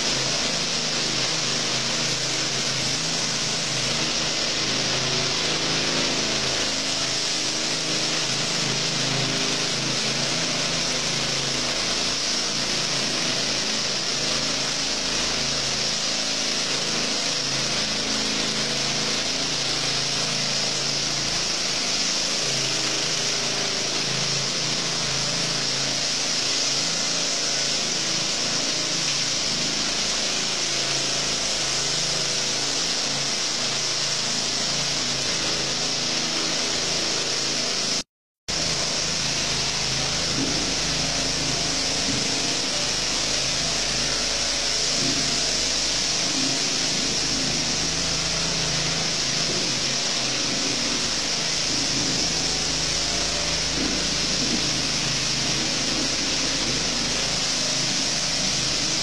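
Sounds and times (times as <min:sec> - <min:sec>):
power trowel engine running: 0:00.0 - 0:59.0.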